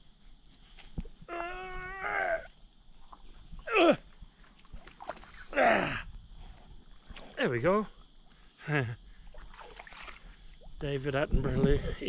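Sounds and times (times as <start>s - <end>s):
man groaning and grunting: 1.3s - 2.5s, 3.7s - 4.0s, 5.5s - 6.1s.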